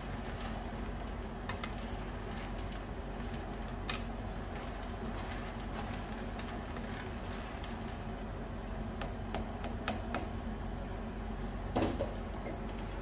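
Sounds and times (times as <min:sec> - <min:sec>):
ladle stirring soup: 0:00.0 - 0:10.4
low steady hum: 0:00.0 - 0:13.0
soup boiling and bubbling: 0:00.0 - 0:13.0.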